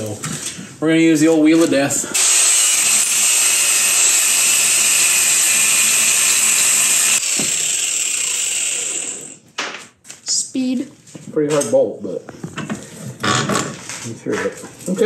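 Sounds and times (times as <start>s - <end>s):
angle grinder cutting metal: 2.1s - 9.4s.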